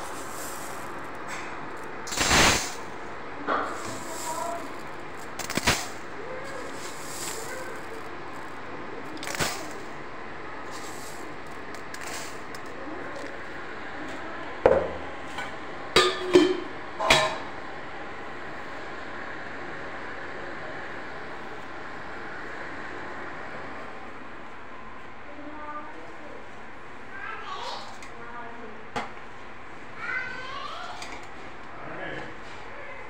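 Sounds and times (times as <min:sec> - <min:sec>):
steady background hiss: 0:00.0 - 0:32.9.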